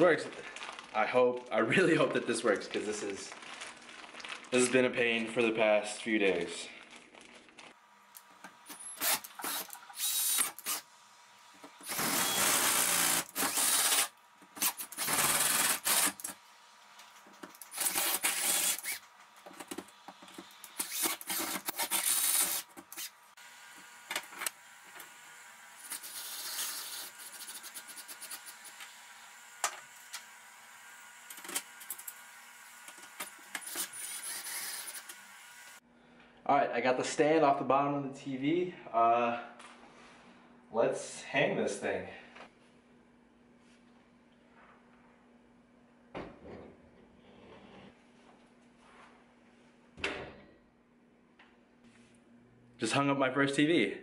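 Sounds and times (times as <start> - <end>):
cordless drill boring drywall: 8.6 - 10.9, 11.7 - 16.4, 17.6 - 19.1, 20.4 - 35.8
drill driving screws: 8.6 - 10.9, 11.7 - 16.4, 17.6 - 19.1, 20.4 - 35.8.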